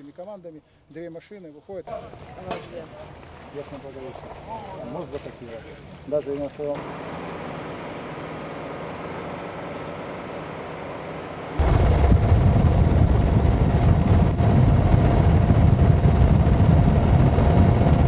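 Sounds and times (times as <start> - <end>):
outdoor background noise: 0.0 - 18.0
helicopter engine and rotor: 11.6 - 18.0.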